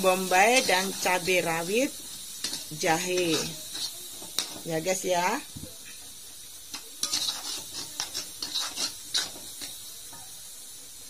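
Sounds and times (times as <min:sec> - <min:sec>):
metal spoon scraping a wok: 0:00.0 - 0:04.9, 0:06.7 - 0:09.8
faint frying sizzle: 0:00.0 - 0:11.0.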